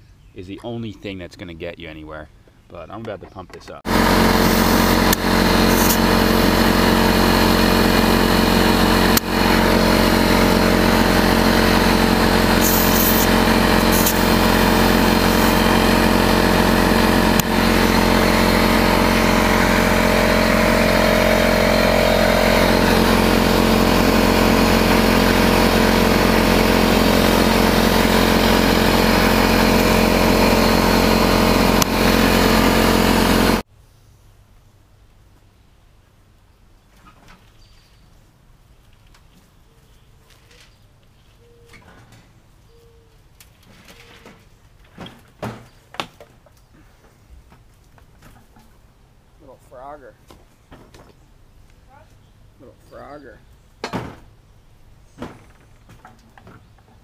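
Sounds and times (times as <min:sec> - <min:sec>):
air compressor running: 0:03.9 - 0:33.7.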